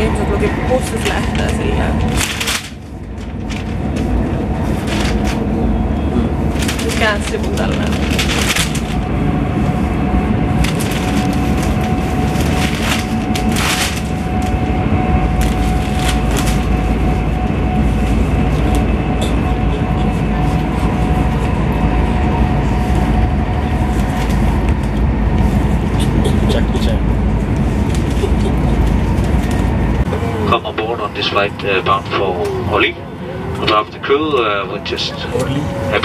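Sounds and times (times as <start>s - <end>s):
train carriage rumble: 0.0s - 36.0s
newspaper pages rustling: 1.2s - 5.4s, 6.6s - 9.0s, 10.6s - 14.6s, 15.4s - 16.8s.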